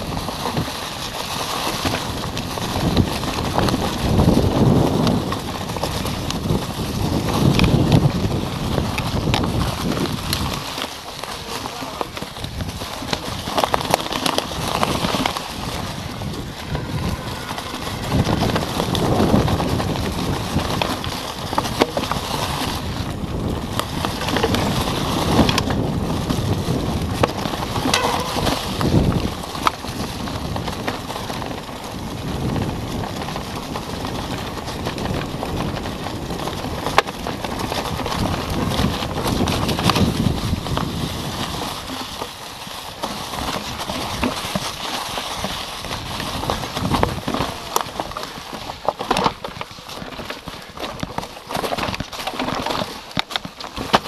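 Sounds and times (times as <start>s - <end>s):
bike clattering and rattling: 0.0s - 54.0s
bike tyres crunching through leaves: 0.0s - 54.0s.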